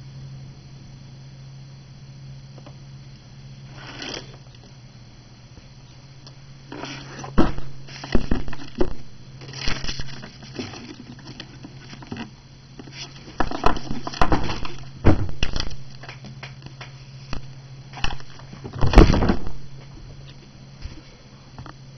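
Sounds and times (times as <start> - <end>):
rustling on desk: 3.7 - 4.4, 6.7 - 14.9.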